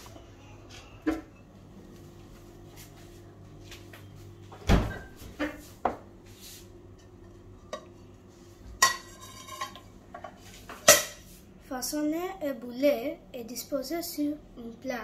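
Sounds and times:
refrigerator door thumping shut: 4.6s - 5.0s.

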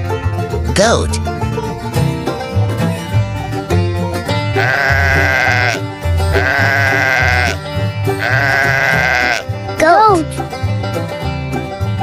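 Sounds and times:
background music: 0.0s - 12.0s
goat bleating: 4.5s - 9.5s.

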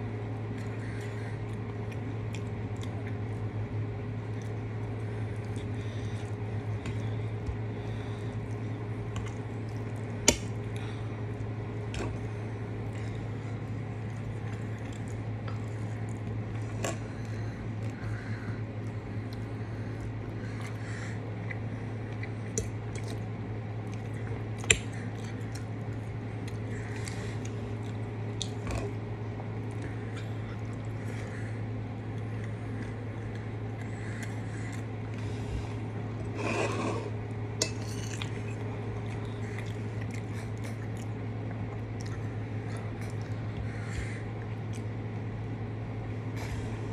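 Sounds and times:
steady low hum: 0.0s - 46.9s
fork scraping a ceramic plate: 36.4s - 38.3s.

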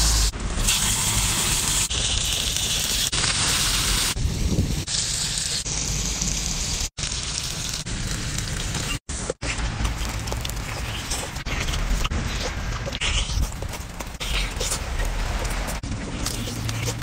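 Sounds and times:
octopus sizzling on hot stone: 0.0s - 11.5s.

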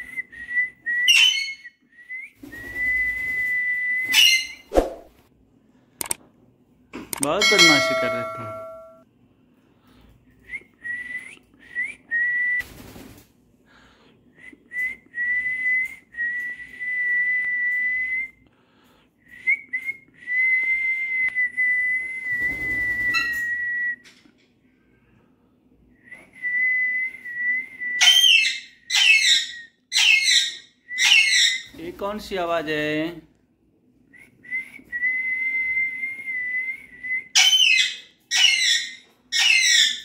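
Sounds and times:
parakeet whistling: 1.1s - 1.7s, 4.1s - 4.7s, 28.0s - 31.7s, 37.3s - 40.0s
parakeet squawks: 4.1s - 4.7s.

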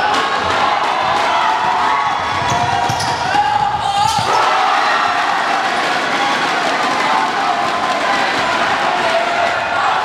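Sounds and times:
crowd cheering and shouting: 0.0s - 10.0s.

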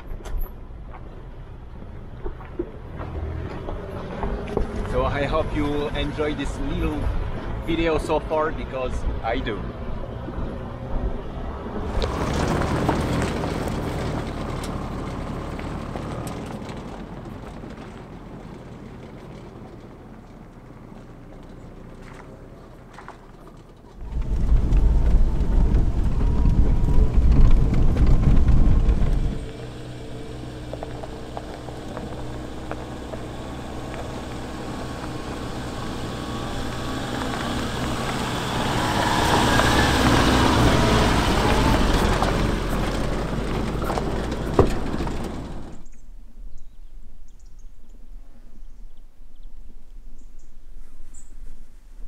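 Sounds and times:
car driving past on gravel: 0.0s - 46.1s
heavy low rumble: 23.9s - 46.0s.

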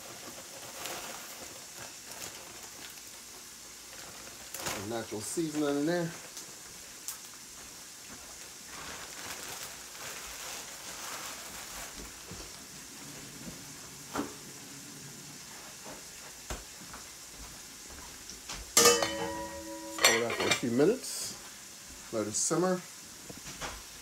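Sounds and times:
pot simmering with soft hiss: 0.0s - 24.0s
metal lid clanging on pot: 18.8s - 20.8s.

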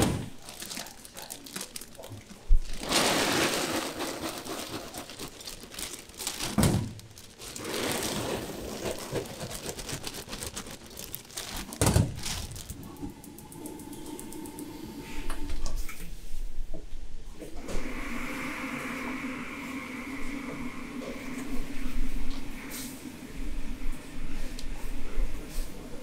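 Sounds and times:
plastic bag crinkling: 0.0s - 13.1s
peanuts rattling: 0.4s - 13.1s.

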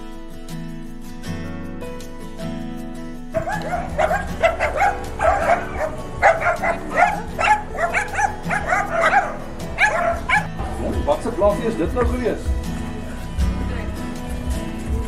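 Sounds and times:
small dog yapping: 3.4s - 10.5s.

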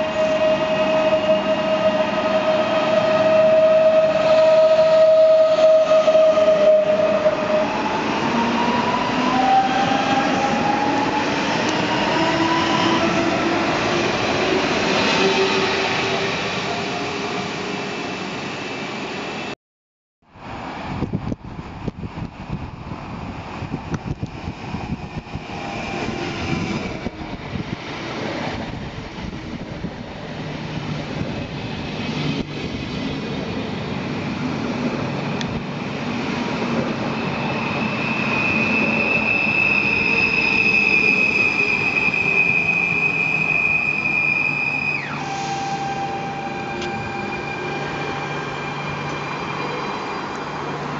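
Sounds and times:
train squealing: 0.0s - 18.7s, 24.8s - 29.4s, 36.2s - 50.9s
train rumble: 20.4s - 50.9s.

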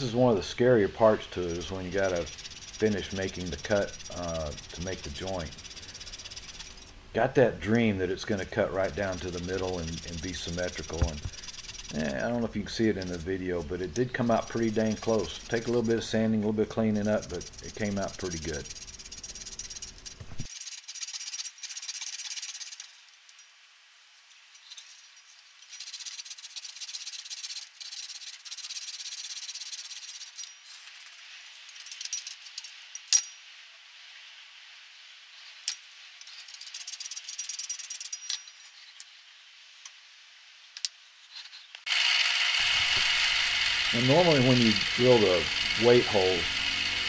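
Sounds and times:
hand saw rasping through wood: 1.3s - 6.8s, 8.8s - 20.0s, 42.6s - 47.0s.

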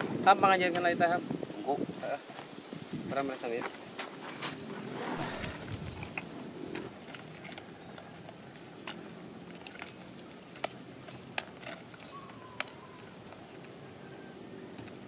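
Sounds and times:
sharp clicks and snaps: 5.7s - 13.8s.

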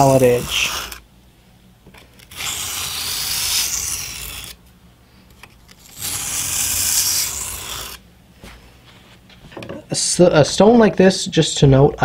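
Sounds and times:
knife scraping on whetstone: 0.0s - 1.0s, 2.2s - 4.6s, 5.8s - 8.0s.

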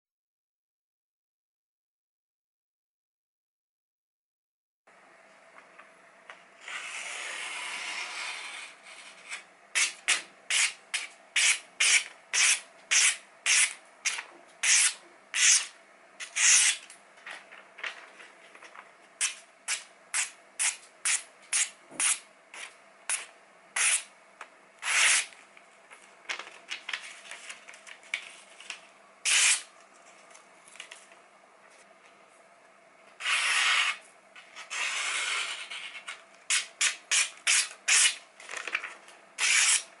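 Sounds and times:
loud paper rustling: 17.2s - 18.9s, 26.3s - 28.8s, 38.4s - 39.8s
knife slicing paper: 29.2s - 29.7s, 34.6s - 38.8s, 39.4s - 39.9s.

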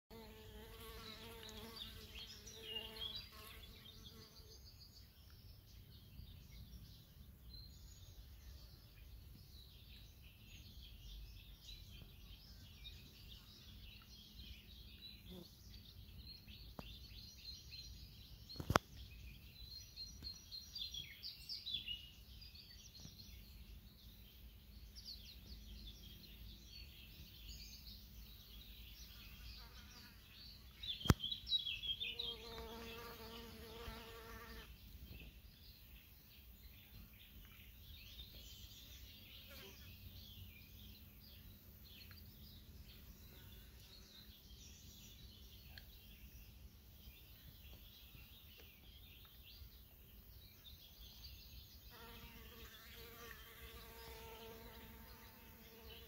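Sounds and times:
flying insect buzzing: 0.1s - 4.4s, 32.2s - 34.7s
sharp click: 31.0s - 31.2s.

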